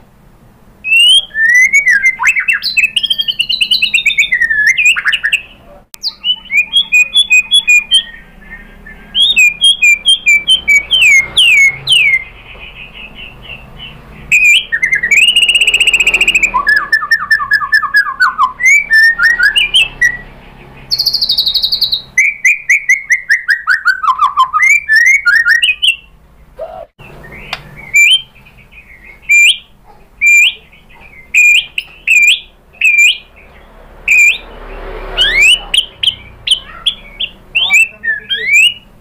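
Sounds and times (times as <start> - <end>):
bird singing loud whistles: 0.8 - 12.4, 14.3 - 20.3, 20.9 - 26.1, 27.0 - 33.4, 34.1 - 38.9.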